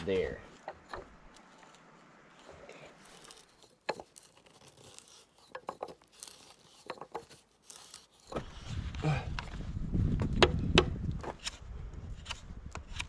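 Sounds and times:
wood crackling and creaking: 0.0 - 13.0
hand auger boring into wood: 0.5 - 8.7
sharp wood crack: 10.2 - 13.0.

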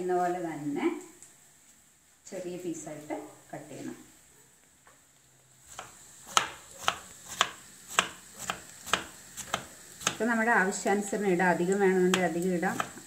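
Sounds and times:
knife dicing on wooden board: 5.7 - 10.2, 12.1 - 13.0.

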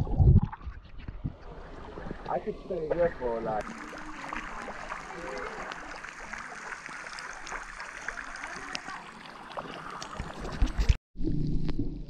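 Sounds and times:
fountain water splashing: 3.6 - 10.5.

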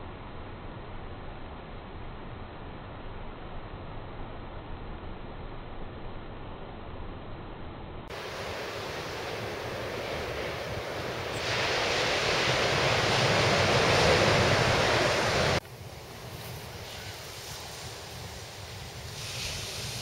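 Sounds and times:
ocean surf breaking on beach: 8.1 - 20.0.

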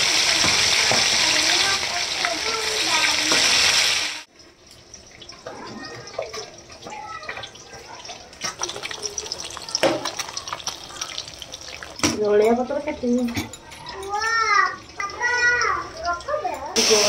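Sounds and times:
loud steady hiss: 16.8 - 17.0.

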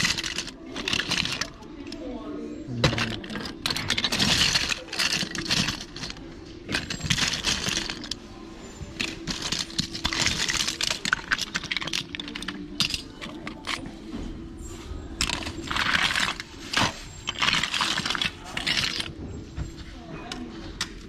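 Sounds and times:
plastic toy pieces clattering: 0.0 - 2.0, 2.8 - 8.2, 8.9 - 14.0, 15.2 - 19.4.

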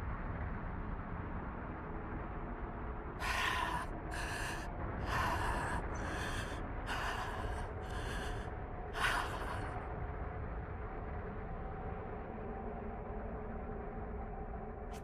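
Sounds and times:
steady low rumble: 0.0 - 15.0
man panting: 3.2 - 9.8.

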